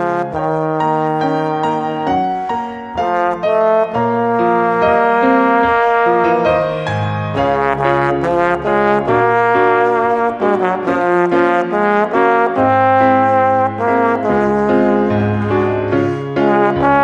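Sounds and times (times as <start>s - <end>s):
piano accompaniment: 0.0s - 17.0s.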